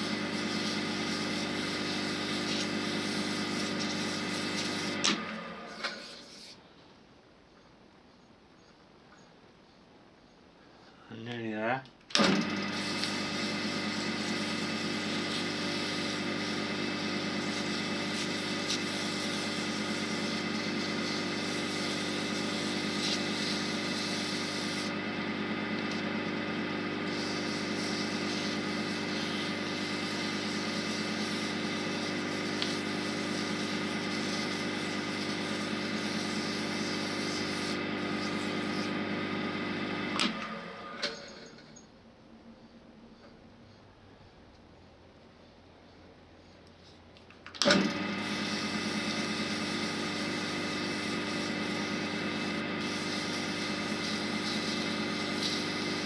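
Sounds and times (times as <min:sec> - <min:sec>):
sandpaper hissing on spinning wood: 0:00.0 - 0:05.0, 0:05.7 - 0:06.6, 0:12.7 - 0:39.8, 0:48.1 - 0:56.0
wood lathe motor running: 0:00.0 - 0:06.2, 0:12.2 - 0:40.8, 0:47.6 - 0:56.0.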